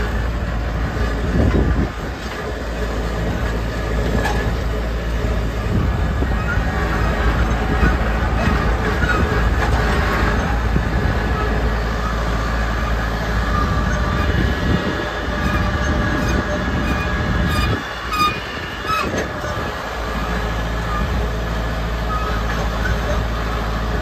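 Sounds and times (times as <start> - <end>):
tractor engine rumble: 0.0 - 24.0
metallic squeaks and clanks: 3.4 - 4.8, 5.6 - 21.3, 22.0 - 23.5.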